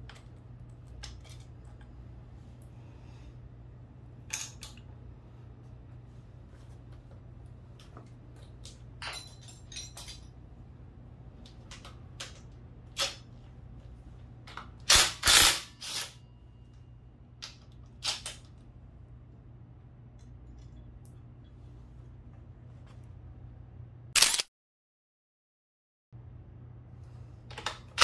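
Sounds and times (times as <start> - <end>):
steady low hum: 0.0 - 24.2, 26.2 - 28.0
metal tools clinking: 8.7 - 10.5.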